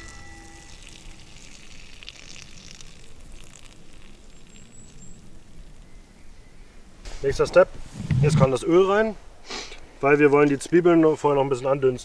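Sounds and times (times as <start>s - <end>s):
water pouring onto pine needles: 0.0s - 5.9s.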